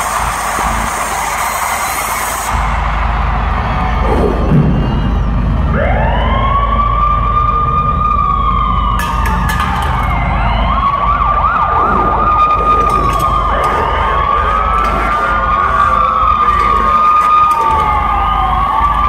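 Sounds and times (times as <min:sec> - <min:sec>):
crowd noise: 0:00.0 - 0:19.0
siren wailing over loudspeakers: 0:05.4 - 0:19.0.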